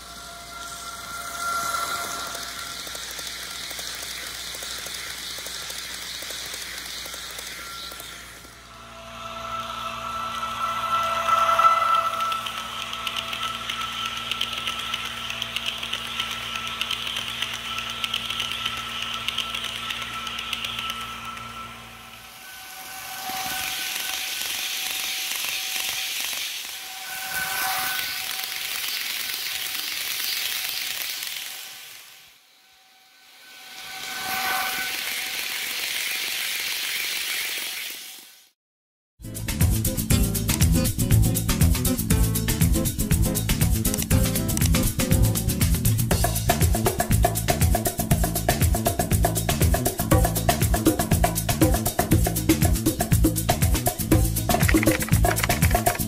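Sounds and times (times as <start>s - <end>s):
model train motor hum: 0.0s - 32.4s, 33.4s - 38.4s
model train wheel hiss: 0.4s - 8.6s, 12.2s - 32.4s, 33.4s - 38.5s.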